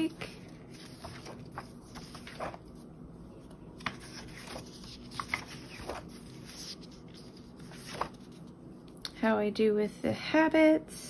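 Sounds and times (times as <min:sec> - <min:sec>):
paper pages rustling: 0:00.0 - 0:08.6.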